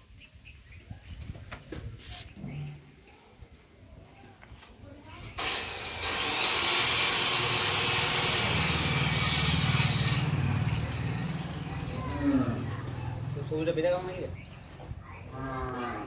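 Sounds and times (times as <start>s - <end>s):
power tool grinding: 5.4s - 13.3s.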